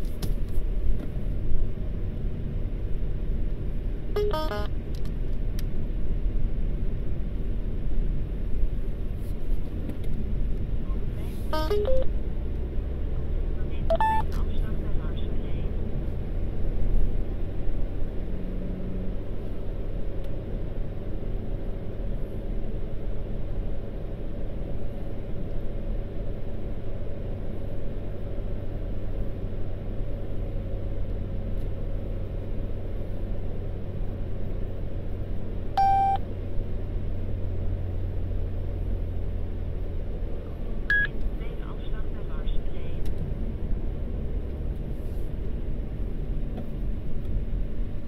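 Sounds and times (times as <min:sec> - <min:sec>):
car road and engine rumble: 0:00.0 - 0:48.0
short electronic beep: 0:04.2 - 0:04.7, 0:11.5 - 0:12.1, 0:13.8 - 0:14.4, 0:35.8 - 0:36.2, 0:40.9 - 0:41.1.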